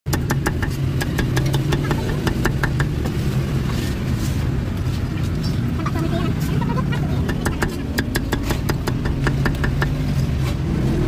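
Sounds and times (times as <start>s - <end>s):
cleaver chopping on wooden block: 0.1s - 3.2s, 7.2s - 10.1s.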